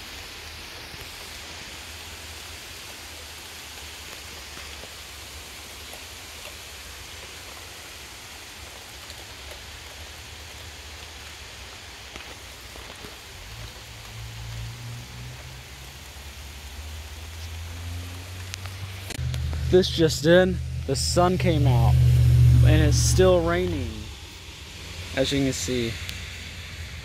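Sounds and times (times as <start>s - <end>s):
rain drops ticking: 0.0s - 27.0s
steady rain: 0.0s - 27.0s
low rumble: 18.8s - 27.0s.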